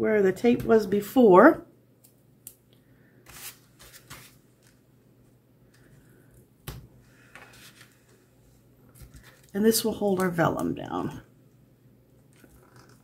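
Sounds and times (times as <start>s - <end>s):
paper rustling and tapping: 3.4s - 4.8s.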